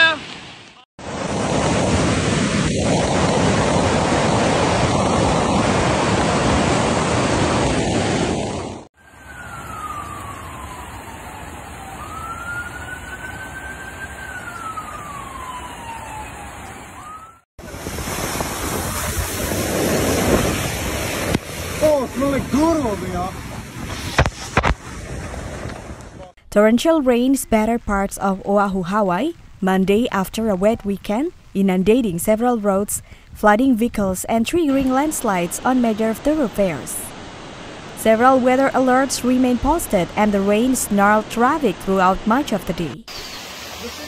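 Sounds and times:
floodwater rushing: 0.0s - 26.4s, 34.6s - 44.0s
siren wailing: 9.0s - 17.5s.

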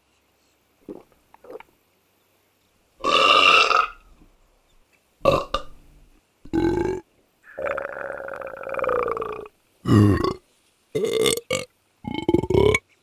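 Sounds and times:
person belching loudly: 3.0s - 4.0s, 5.2s - 5.8s, 6.5s - 10.4s, 11.0s - 12.8s.

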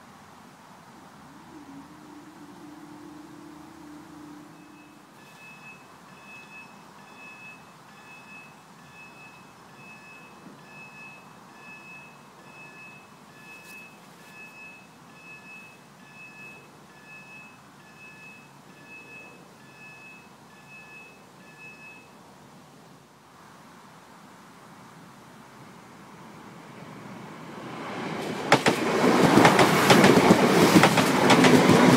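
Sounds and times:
level crossing alarm beeping: 1.3s - 22.2s.

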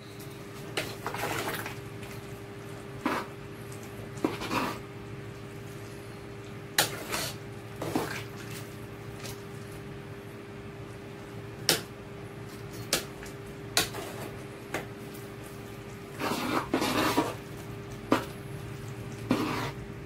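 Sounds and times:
ladle scraping pot: 4.2s - 4.8s, 16.1s - 17.5s, 19.1s - 19.8s.

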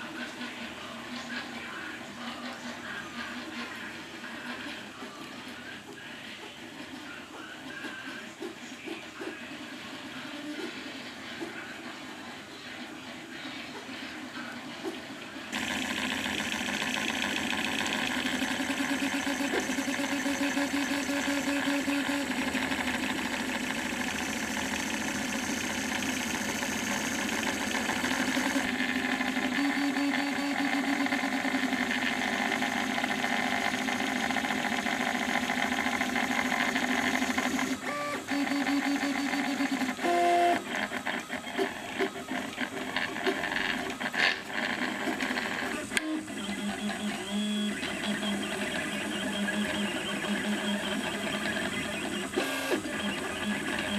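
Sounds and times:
printer stepper motors whining: 14.6s - 53.9s.

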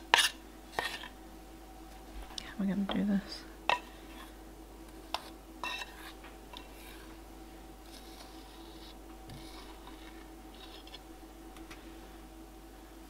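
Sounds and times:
faint steady hum: 0.0s - 13.0s
metal spoon scraping steel bowl: 5.2s - 7.0s.

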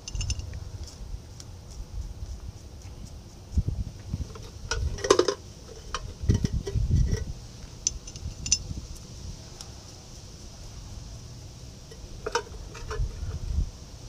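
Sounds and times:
metal nuts clinking: 0.0s - 0.6s, 4.4s - 8.7s, 11.9s - 13.2s.

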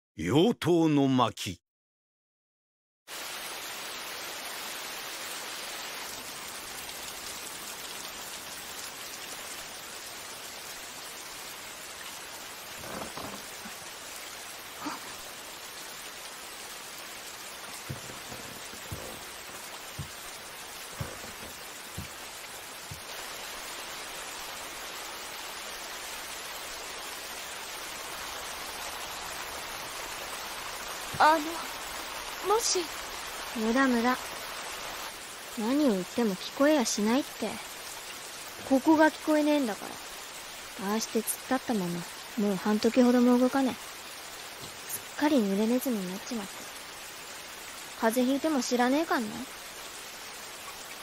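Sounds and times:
rain pattering on ground: 3.1s - 51.0s
faint taps: 17.8s - 19.3s, 19.9s - 20.2s, 20.9s - 22.2s.

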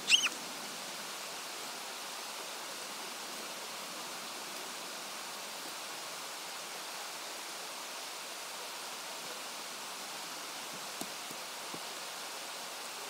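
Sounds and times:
river rushing: 0.0s - 2.9s.

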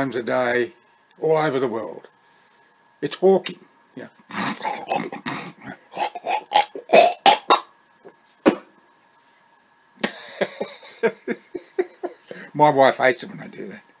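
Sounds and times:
man hawking phlegm: 4.3s - 7.7s, 8.4s - 8.7s
man spitting: 4.3s - 7.7s, 8.4s - 8.7s.

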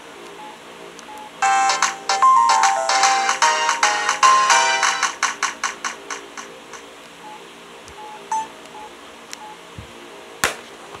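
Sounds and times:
phone ringtone: 1.4s - 5.3s, 8.3s - 8.5s
faint short beeps: 8.0s - 9.6s.

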